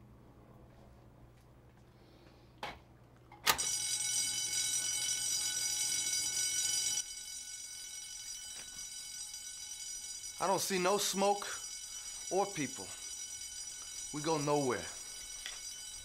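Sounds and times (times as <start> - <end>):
fire alarm pull station click: 3.4 - 5.6
loud steady fire alarm tone: 3.6 - 16.0.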